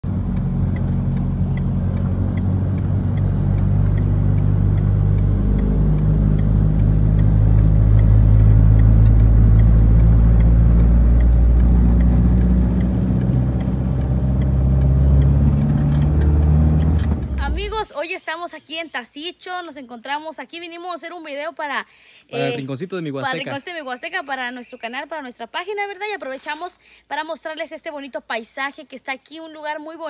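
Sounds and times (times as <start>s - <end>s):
car engine and tyre noise: 0.0s - 17.8s.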